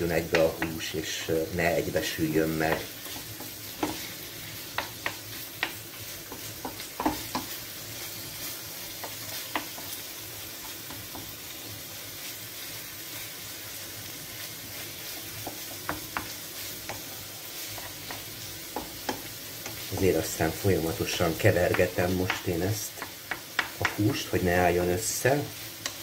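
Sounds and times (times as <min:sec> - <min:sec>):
meat sizzling in a frying pan: 0:00.0 - 0:26.0
wooden spoon scraping and tapping pan: 0:00.2 - 0:01.2, 0:02.0 - 0:11.4, 0:15.0 - 0:24.2, 0:25.8 - 0:26.0.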